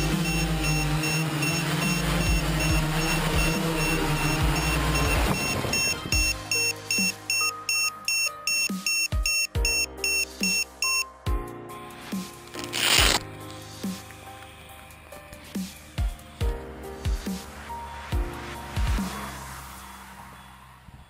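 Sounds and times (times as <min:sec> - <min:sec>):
drone propellers spinning: 0:00.0 - 0:05.4
electronic buzzer beeping: 0:00.0 - 0:11.1.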